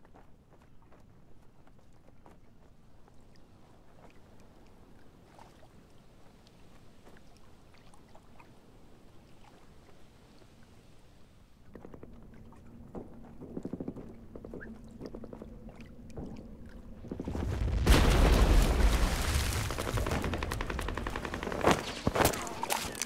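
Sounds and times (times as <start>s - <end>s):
heavy barrage with deep rumble: 11.9s - 23.0s
rapid gunfire: 17.8s - 23.0s.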